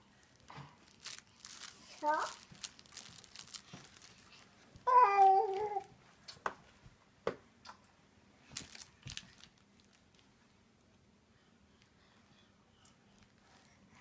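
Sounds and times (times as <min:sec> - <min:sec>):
toddler wordless vocal sound: 0:01.9 - 0:02.4, 0:04.8 - 0:05.9.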